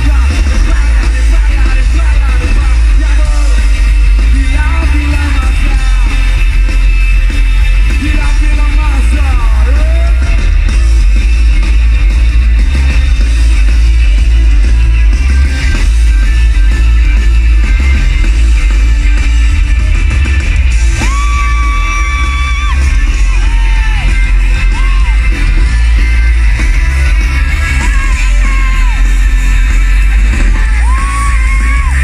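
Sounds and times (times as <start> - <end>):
live rock band playing: 0.0 - 32.0
person singing: 21.0 - 32.0.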